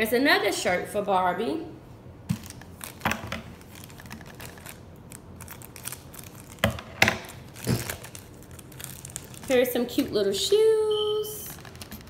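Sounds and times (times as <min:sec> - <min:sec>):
packaging rustling: 0:02.3 - 0:10.8, 0:11.4 - 0:12.0.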